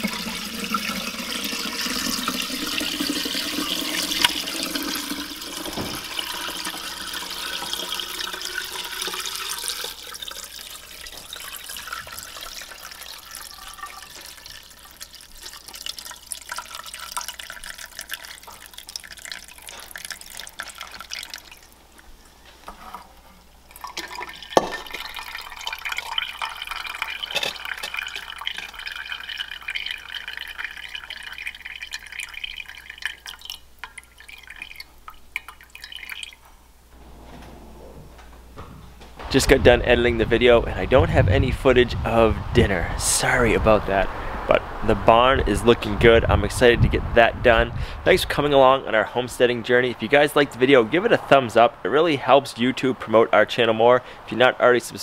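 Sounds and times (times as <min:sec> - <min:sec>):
broth pouring through strainer: 0:00.0 - 0:21.7, 0:23.7 - 0:36.4
liquid splashing and dripping: 0:00.0 - 0:22.1, 0:23.7 - 0:36.6.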